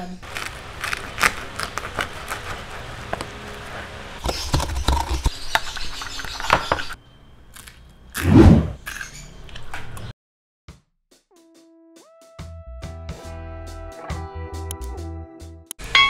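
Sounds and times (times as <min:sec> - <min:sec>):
knife cutting crispy pork crackling: 0:00.2 - 0:06.8.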